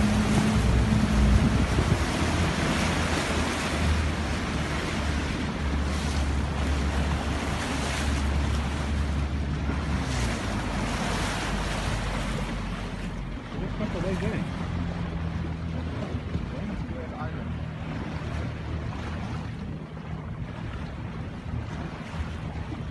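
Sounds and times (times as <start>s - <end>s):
wind on microphone: 0.0s - 12.9s
low rumble: 0.0s - 22.9s
waves washing around boat: 0.0s - 22.9s.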